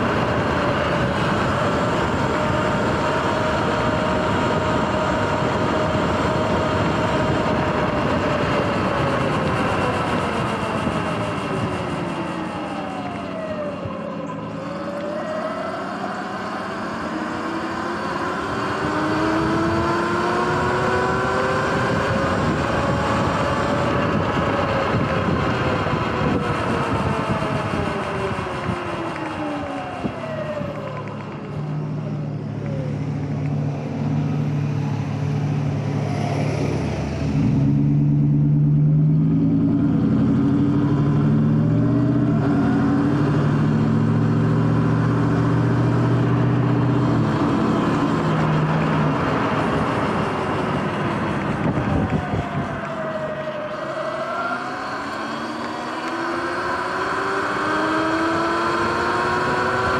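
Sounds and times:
road and wind noise: 0.0 - 59.9
electric motor and chain whine: 39.4 - 59.9.

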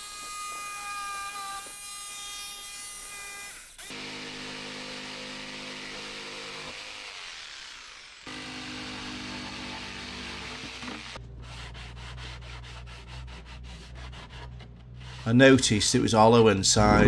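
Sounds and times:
jigsaw cutting chipboard: 3.5 - 11.2
sanding block rubbing wood: 10.5 - 16.0.

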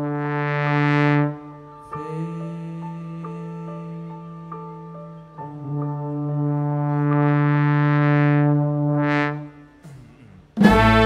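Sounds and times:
brass and saxophones holding a chord: 10.6 - 11.0.

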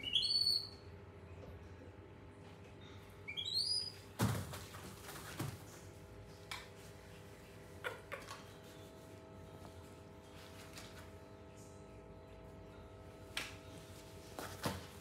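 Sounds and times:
baby monkey squealing: 0.0 - 0.7, 3.3 - 4.0.

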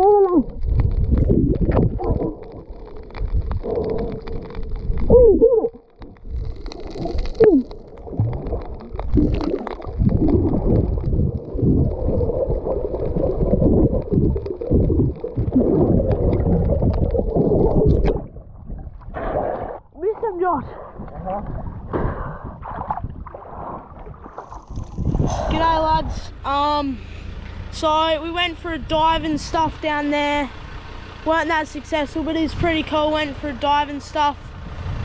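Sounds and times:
underwater gurgling and sloshing: 0.0 - 26.5.

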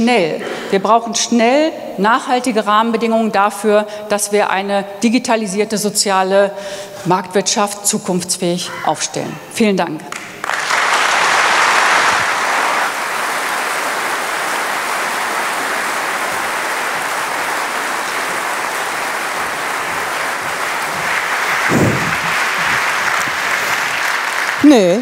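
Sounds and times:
audience applauding: 10.1 - 25.0.

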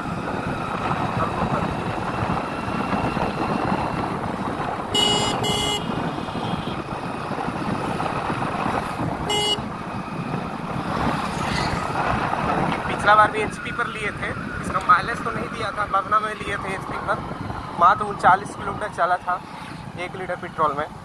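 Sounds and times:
motorcycle engine: 0.0 - 12.9
wind: 0.0 - 21.0
horn beeping: 4.9 - 6.8, 9.3 - 9.7.

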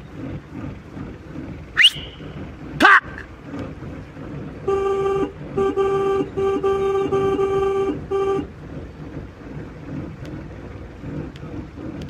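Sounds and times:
car horn honking: 4.6 - 8.6.

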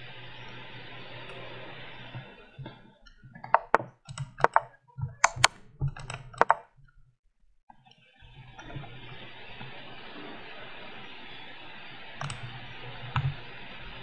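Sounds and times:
sharp wooden clicks: 3.1 - 7.0.

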